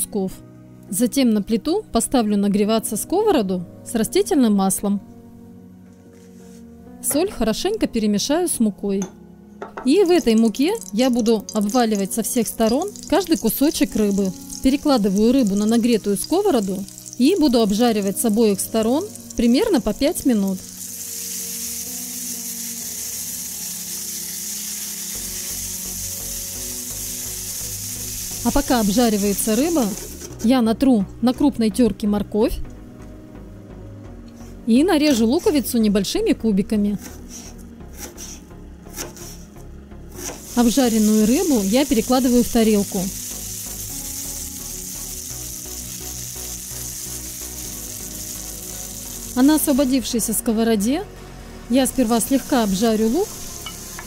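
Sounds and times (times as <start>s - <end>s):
soft background music: 0.0s - 54.0s
fish frying in oil: 10.1s - 30.2s, 40.4s - 49.8s.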